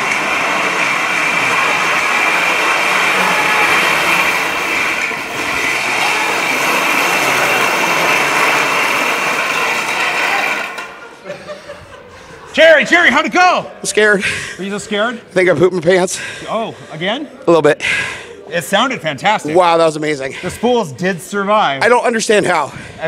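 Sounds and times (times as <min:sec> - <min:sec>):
go-kart wheels rolling on concrete: 0:00.0 - 0:11.2.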